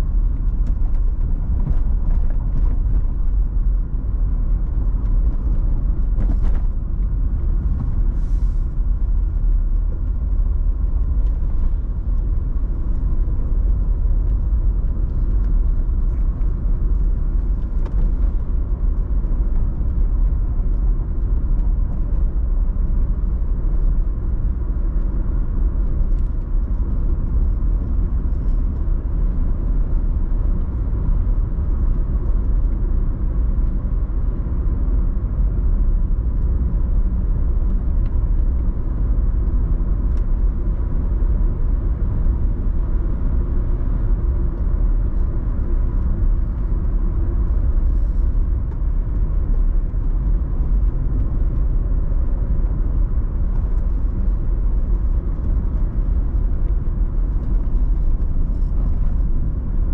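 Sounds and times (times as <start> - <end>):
car road rumble: 0.0 - 59.9.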